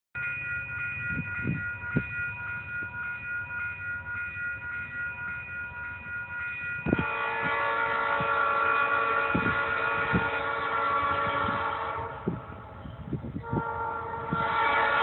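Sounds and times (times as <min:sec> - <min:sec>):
crossing signal bell ringing: 0:00.2 - 0:15.0
train horn: 0:06.9 - 0:15.0.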